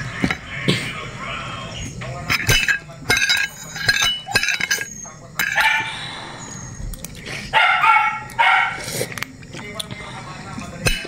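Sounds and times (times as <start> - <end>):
spoon clinking: 2.3 - 5.8
dog barking: 5.6 - 5.9, 7.5 - 8.8.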